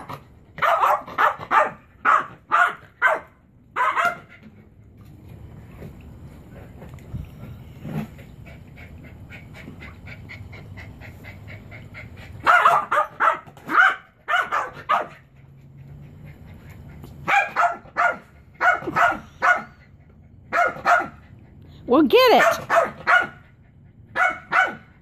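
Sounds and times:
small dog barking: 0:00.0 - 0:04.3, 0:12.4 - 0:15.2, 0:17.2 - 0:19.8, 0:20.5 - 0:21.2, 0:22.3 - 0:23.4, 0:24.1 - 0:24.9.

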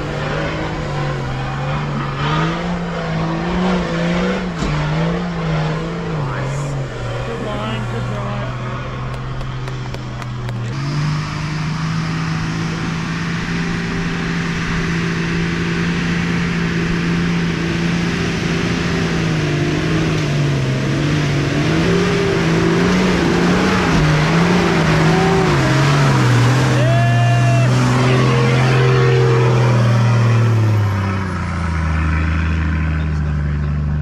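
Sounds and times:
engine revving under load: 0:00.0 - 0:34.0.

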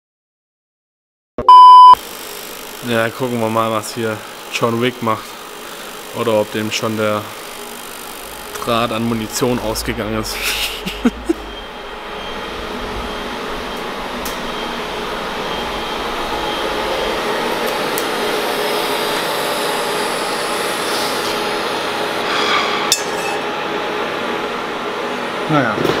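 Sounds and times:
welding hiss: 0:02.0 - 0:23.4
faint whining tones: 0:05.4 - 0:22.2.

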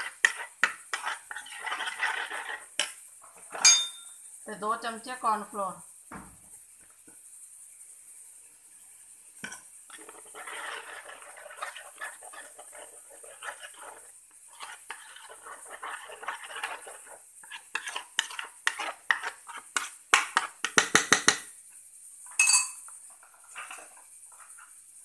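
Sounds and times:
spoon scraping paste in bowl: 0:00.0 - 0:03.0, 0:09.9 - 0:20.8, 0:23.2 - 0:24.8
ringing clink: 0:03.6 - 0:04.2, 0:22.4 - 0:22.8.

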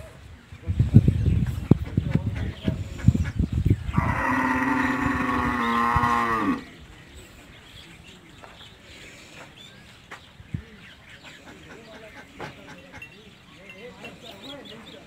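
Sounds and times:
cow mooing: 0:04.0 - 0:06.7.

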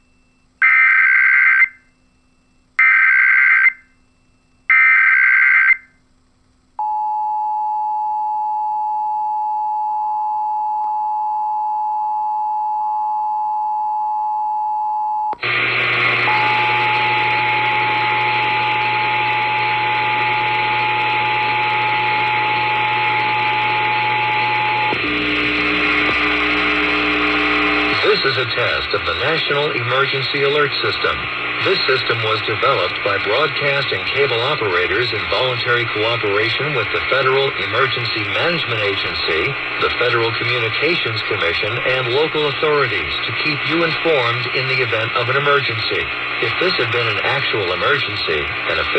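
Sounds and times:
loud hiss of noise: 0:24.9 - 0:48.9.

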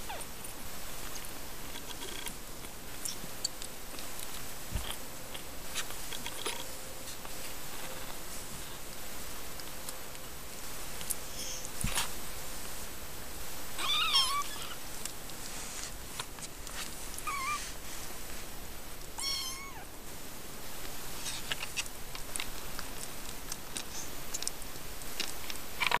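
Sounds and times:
kittens mewing: 0:13.8 - 0:14.8, 0:17.2 - 0:17.7, 0:19.2 - 0:19.9
faint rustling: 0:13.8 - 0:24.2.

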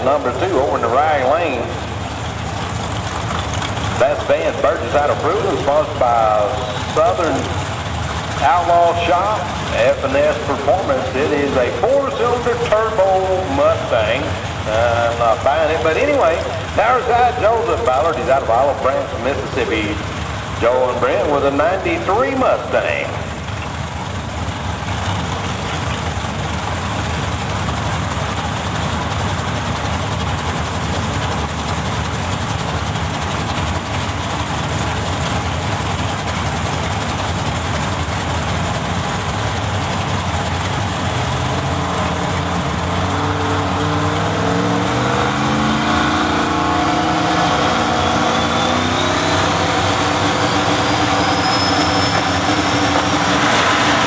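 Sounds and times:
engine revving: 0:00.0 - 0:23.2, 0:40.4 - 0:54.0
race car engines running: 0:00.0 - 0:54.0
turbo whine: 0:41.6 - 0:54.0.

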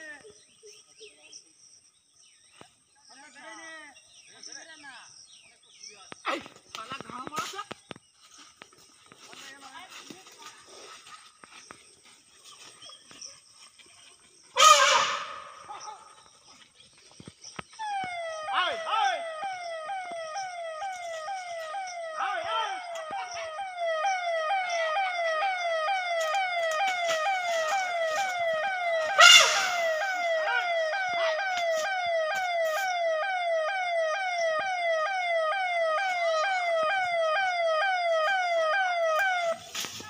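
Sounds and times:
electronic siren wailing: 0:14.6 - 0:15.7, 0:17.7 - 0:39.8.

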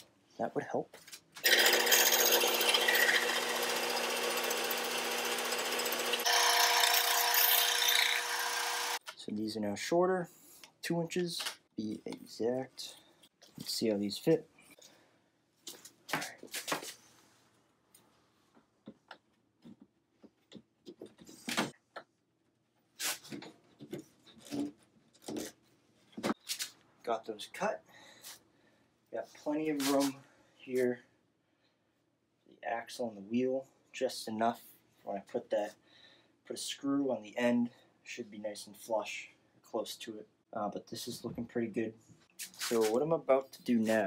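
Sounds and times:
bandsaw cutting plastic pipe: 0:01.4 - 0:09.1.

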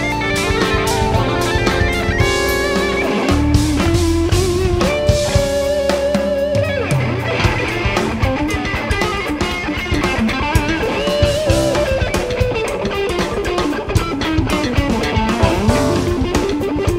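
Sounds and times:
electric guitar lead with vibrato: 0:00.0 - 0:07.8, 0:15.1 - 0:16.9
bass guitar: 0:00.0 - 0:16.9
drums: 0:00.0 - 0:16.9.

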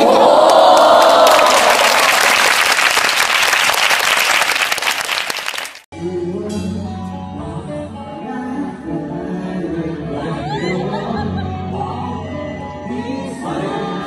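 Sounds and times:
crowd clapping and cheering: 0:00.0 - 0:05.9
instrumental background music: 0:06.0 - 0:14.0.

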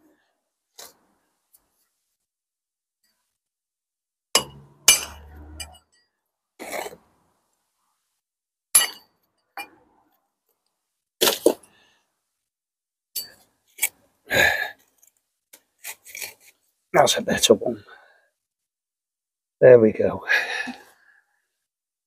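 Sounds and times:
bricks and steel tools clinking: 0:04.4 - 0:06.0, 0:08.8 - 0:09.7, 0:13.2 - 0:13.9.

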